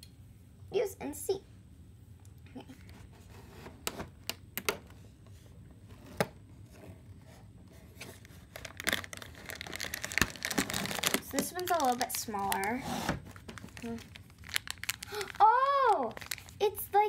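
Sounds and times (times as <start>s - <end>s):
cardboard tearing and crinkling: 8.0s - 16.7s.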